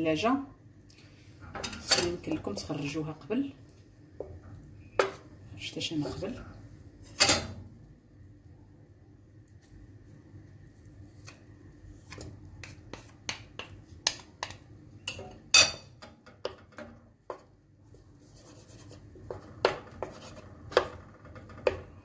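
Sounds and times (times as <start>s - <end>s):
wooden spatula scraping pan: 17.3s - 22.0s.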